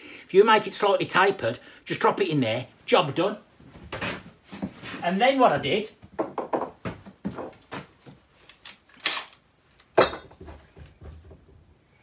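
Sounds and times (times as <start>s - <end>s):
tools knocking and clinking: 10.0s - 11.4s.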